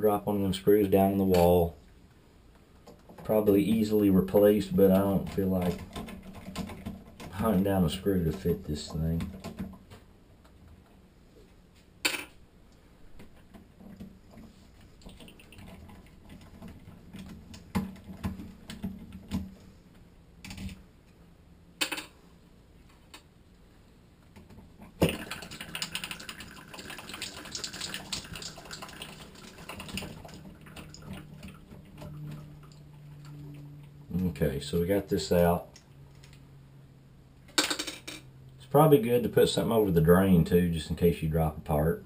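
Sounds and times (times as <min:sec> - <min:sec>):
scratchy ticking and rattling: 0:04.7 - 0:09.8.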